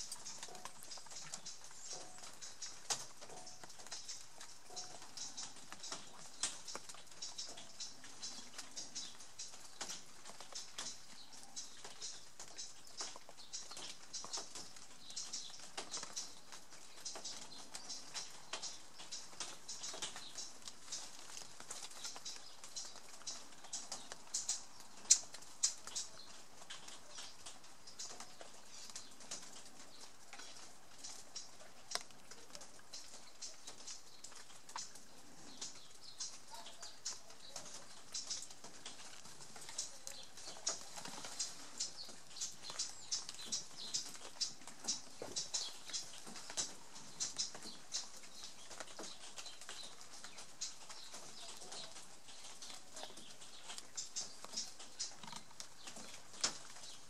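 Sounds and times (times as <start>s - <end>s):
water dripping onto leaves: 0.0s - 57.0s.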